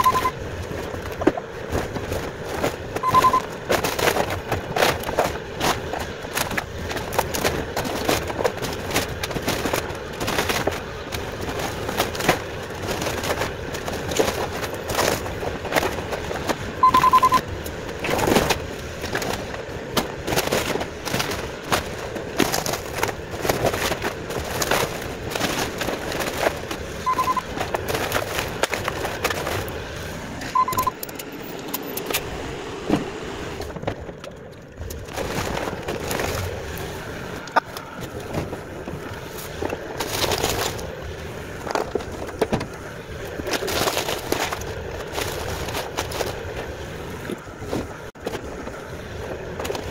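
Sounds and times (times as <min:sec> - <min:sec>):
short electronic beeps: 0:00.0 - 0:00.4, 0:03.0 - 0:03.5, 0:16.8 - 0:17.4, 0:27.1 - 0:27.5, 0:30.5 - 0:31.0
wood and scrap cracking and clattering: 0:00.0 - 0:30.1, 0:33.6 - 0:48.8
excavator running: 0:00.0 - 0:49.9.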